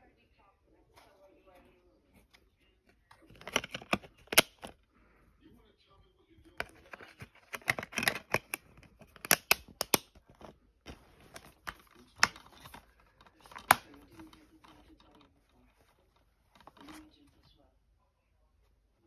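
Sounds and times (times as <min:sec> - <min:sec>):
plastic case clicking and snapping: 0:03.1 - 0:04.8, 0:06.5 - 0:15.3.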